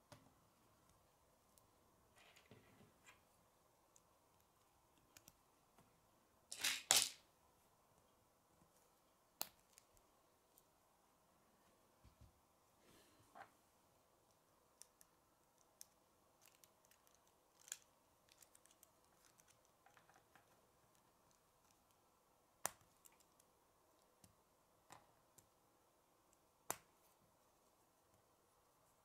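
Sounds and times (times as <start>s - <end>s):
plastic pieces clicking and snapping: 6.5s - 7.2s, 14.8s - 20.6s.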